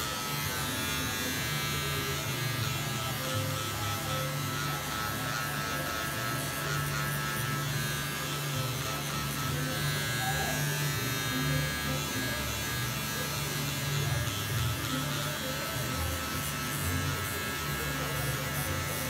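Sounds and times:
electric hair clippers buzzing: 0:00.0 - 0:19.0.

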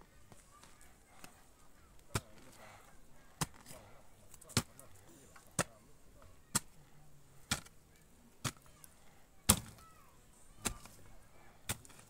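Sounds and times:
hoe chopping into soil: 0:07.5 - 0:07.7, 0:09.5 - 0:09.8, 0:10.6 - 0:11.0, 0:11.7 - 0:12.0.

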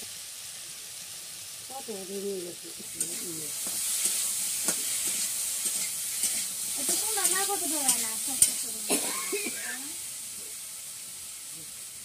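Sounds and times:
fish sizzling in a wok: 0:00.0 - 0:12.0
spatula scraping a pan: 0:02.9 - 0:08.9.

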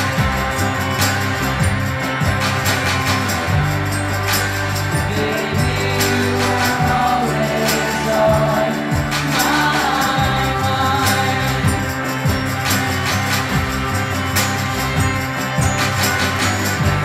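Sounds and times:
live indie rock band: 0:00.0 - 0:17.0
percussion hits: 0:00.0 - 0:17.0
group of voices singing: 0:04.5 - 0:14.1.

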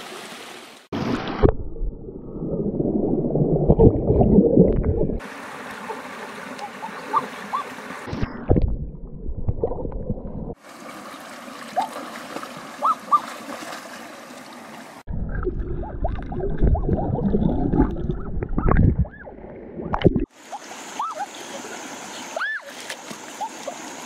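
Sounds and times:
stream rushing: 0:00.0 - 0:01.3, 0:05.2 - 0:08.2, 0:10.6 - 0:15.1, 0:20.3 - 0:24.0
person wading and splashing: 0:09.4 - 0:19.2.

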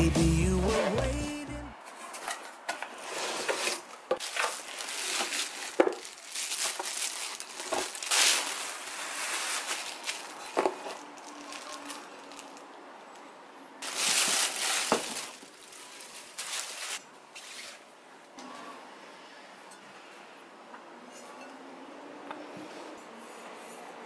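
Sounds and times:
plastic and cardboard rustling: 0:01.9 - 0:12.7, 0:13.8 - 0:17.8.

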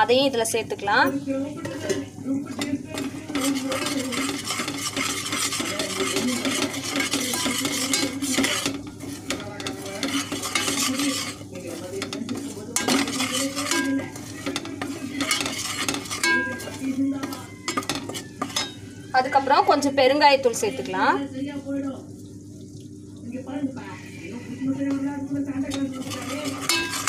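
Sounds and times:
masala sizzling in oil: 0:00.0 - 0:27.0
steel spoon scraping a pot: 0:01.6 - 0:19.6, 0:25.6 - 0:27.0.

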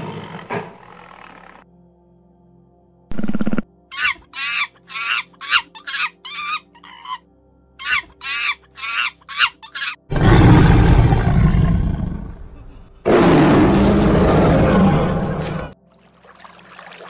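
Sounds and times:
squawking animal calls: 0:03.9 - 0:07.2, 0:07.8 - 0:10.1
lion roaring: 0:10.1 - 0:15.8.

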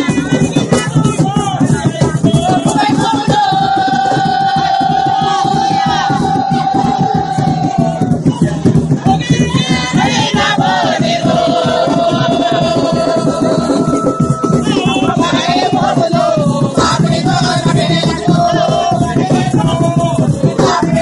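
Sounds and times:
crowd noise: 0:00.0 - 0:21.0
group of voices singing: 0:00.0 - 0:21.0
hand drums beating fast rhythm: 0:00.0 - 0:21.0.

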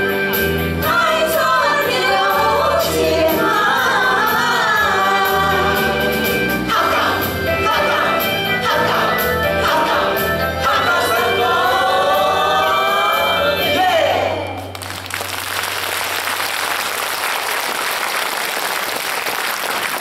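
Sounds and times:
group singing with backing music: 0:00.5 - 0:14.7
audience applauding: 0:14.6 - 0:20.0.

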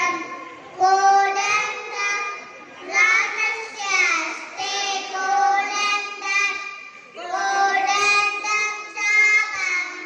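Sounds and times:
children singing: 0:00.0 - 0:10.0.

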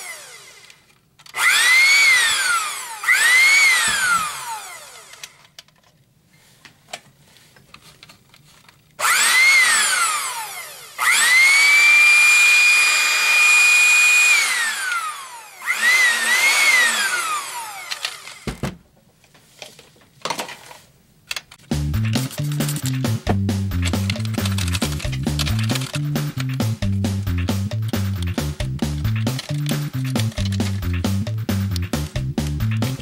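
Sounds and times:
blender motor whine: 0:00.0 - 0:05.4, 0:09.0 - 0:18.5.

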